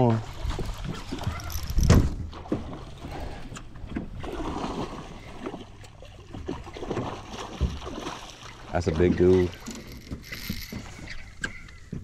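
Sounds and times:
lure splashing in water: 0.0s - 11.7s
fishing rod whoosh: 9.5s - 11.6s.

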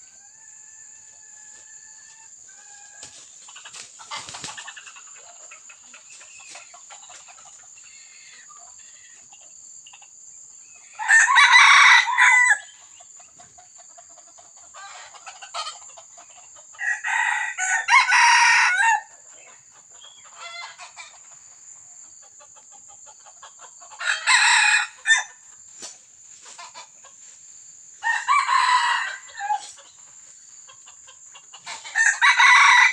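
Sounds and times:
faint bird calls: 7.7s - 9.3s
rooster crowing: 10.9s - 12.7s, 16.8s - 19.1s, 24.0s - 25.3s, 28.0s - 29.7s, 31.9s - 32.9s.

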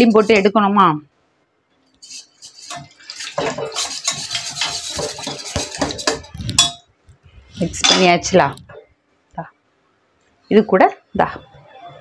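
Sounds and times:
spoon stirring batter in bowl: 1.9s - 6.9s.

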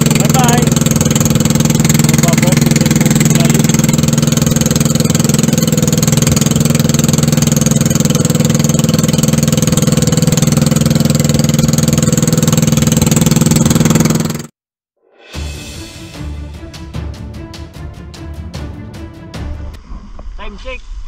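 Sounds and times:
boat engine droning: 0.0s - 14.5s.

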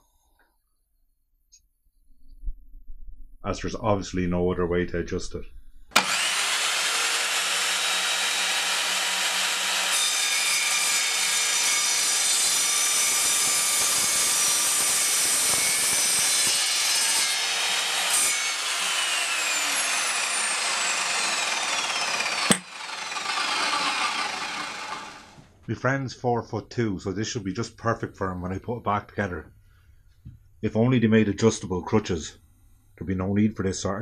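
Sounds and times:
mitre saw cutting metal tube: 5.9s - 25.4s
sharp click: 22.5s - 22.7s.

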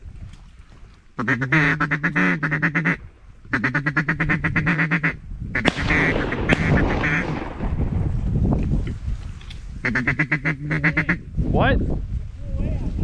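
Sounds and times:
duck call chatter: 1.2s - 7.3s, 9.8s - 11.2s.

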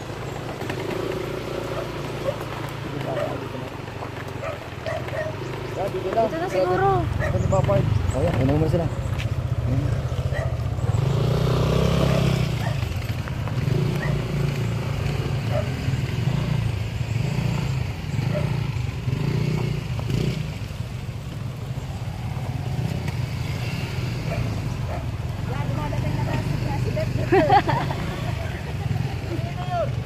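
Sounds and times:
motor scooters riding by: 0.0s - 30.0s.

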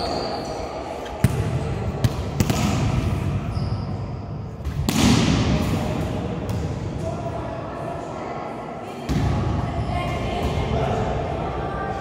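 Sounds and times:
volleyball hits echoing: 1.2s - 3.4s, 4.6s - 7.1s.

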